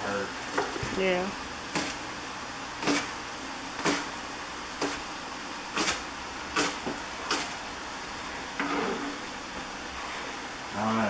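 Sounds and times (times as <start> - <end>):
knife chopping on plastic board: 2.8 - 3.1, 3.8 - 4.1, 4.8 - 5.0.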